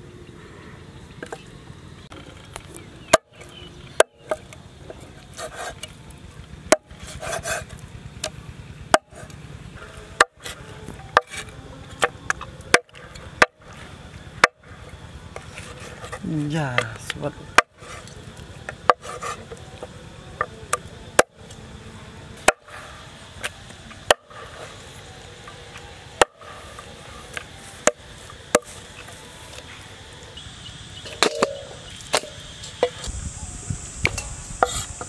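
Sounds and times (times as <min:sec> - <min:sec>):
cleaver chopping onto wooden board: 0:06.7 - 0:07.5, 0:08.9 - 0:09.3, 0:10.2 - 0:13.6, 0:22.4 - 0:22.8, 0:24.1 - 0:24.4, 0:26.2 - 0:26.5.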